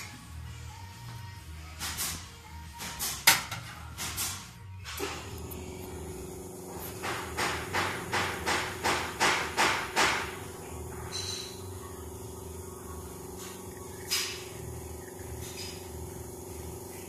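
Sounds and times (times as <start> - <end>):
rhythmic pulsing hiss: 0.0 - 17.0
espresso machine humming: 5.1 - 17.0.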